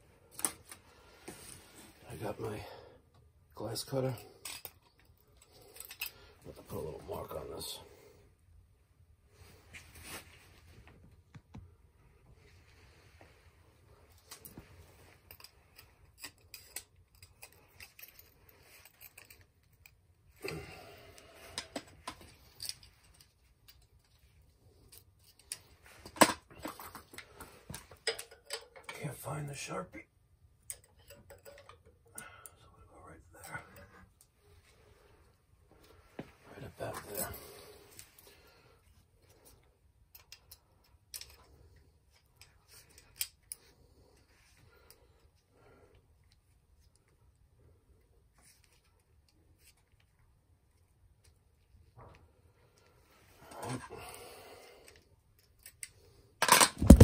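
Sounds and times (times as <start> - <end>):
tools and small parts rattling: 4.0 - 6.4, 14.1 - 20.1, 21.5 - 29.0, 30.6 - 32.2, 39.2 - 45.0, 54.9 - 57.0.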